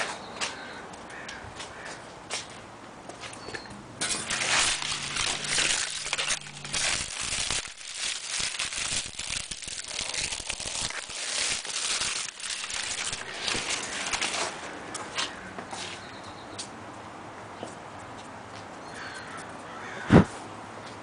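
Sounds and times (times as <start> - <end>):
dry fern fronds rustling: 4.0 - 15.5.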